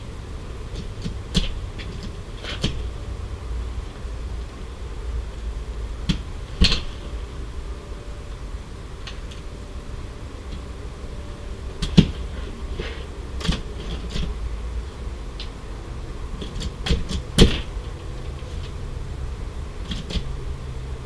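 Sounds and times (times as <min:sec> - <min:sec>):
metal ladder clicks and knocks: 0:13.4 - 0:14.3, 0:16.4 - 0:18.0, 0:19.8 - 0:20.3.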